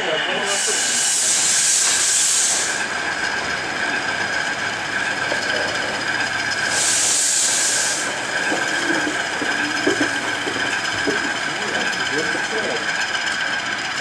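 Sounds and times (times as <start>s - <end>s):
model train whine: 0.0s - 14.0s
loud hiss burst: 0.5s - 3.0s, 6.6s - 8.3s
busy hum: 2.5s - 13.7s.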